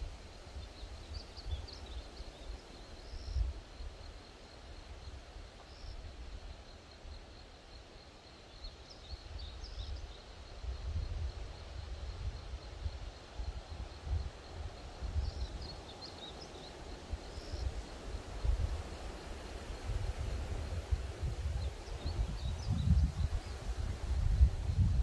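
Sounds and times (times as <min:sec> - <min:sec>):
high insect trill: 0:00.5 - 0:25.0
wind buffeting microphone: 0:17.0 - 0:25.0.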